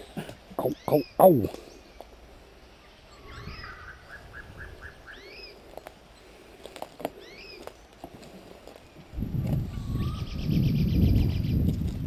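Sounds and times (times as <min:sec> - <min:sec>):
songbird singing: 0:00.0 - 0:11.9
footsteps in dry undergrowth: 0:04.9 - 0:10.2, 0:11.1 - 0:12.0.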